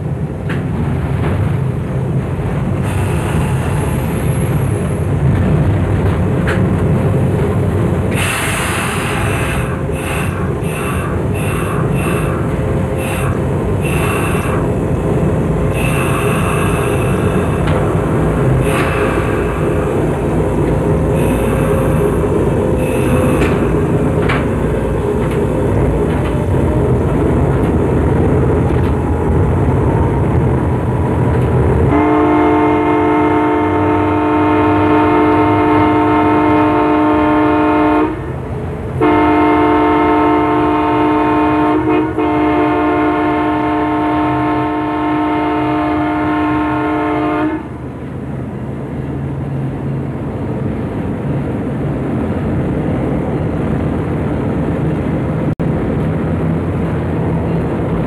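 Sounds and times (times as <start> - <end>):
diesel locomotive engine rumble: 0.0 - 58.0
locomotive air horn blasts: 13.0 - 14.6, 15.7 - 17.4, 31.9 - 38.3, 39.0 - 47.8.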